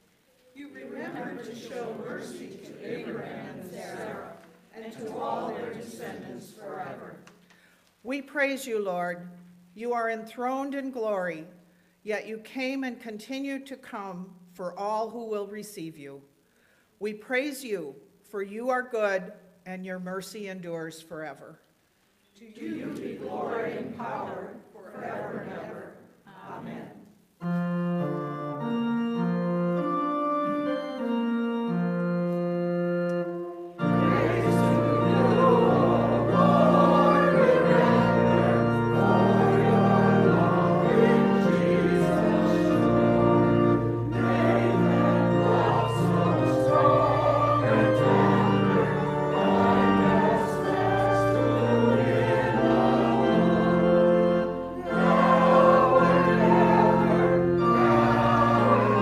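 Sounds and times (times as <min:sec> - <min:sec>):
choir singing a hymn: 0:00.6 - 0:07.3, 0:22.4 - 0:59.0
organ playing chords: 0:27.4 - 0:59.0.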